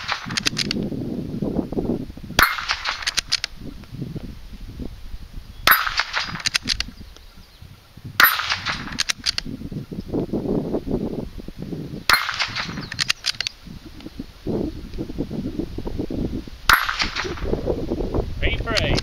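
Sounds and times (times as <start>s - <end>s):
bullets striking steel targets: 0.0s - 0.7s, 2.4s - 3.4s, 5.7s - 6.8s, 8.2s - 9.4s, 12.1s - 13.4s, 16.7s - 17.4s
rifle shots: 0.0s - 0.8s, 2.4s - 3.5s, 5.7s - 6.9s, 8.2s - 9.4s, 12.1s - 13.5s, 16.7s - 17.5s.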